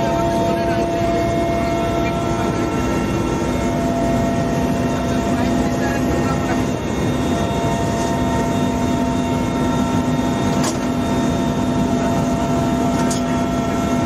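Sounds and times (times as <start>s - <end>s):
helicopter engine and rotor drone: 0.0s - 14.0s.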